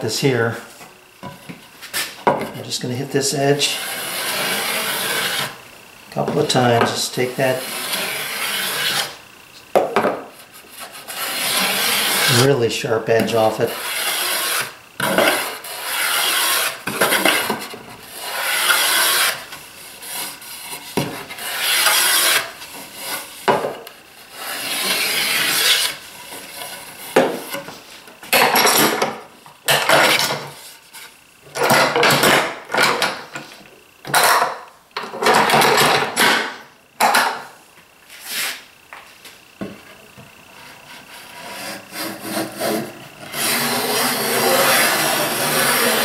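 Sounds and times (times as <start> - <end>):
hand tool strokes on wooden board: 38.1 - 38.6.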